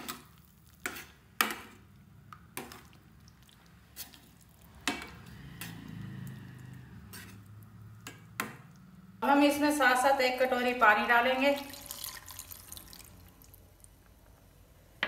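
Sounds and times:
ladle stirring thick sauce: 0.0s - 8.9s.

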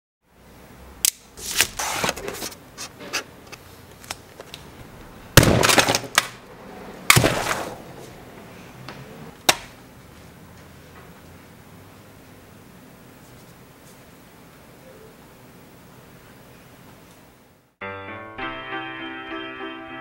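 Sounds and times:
cassette smashing crash: 5.4s - 6.4s, 7.1s - 7.8s.

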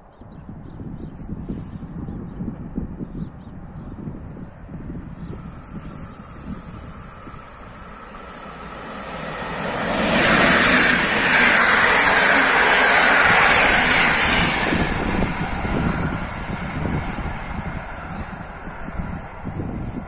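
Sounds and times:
train wheels on rails: 5.3s - 20.0s.

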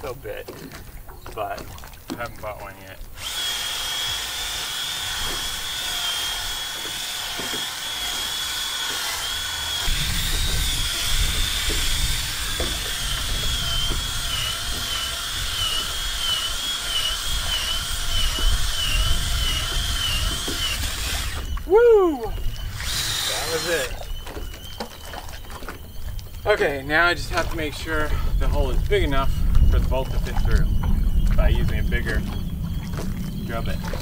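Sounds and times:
cordless drill motor whining: 3.2s - 24.4s.

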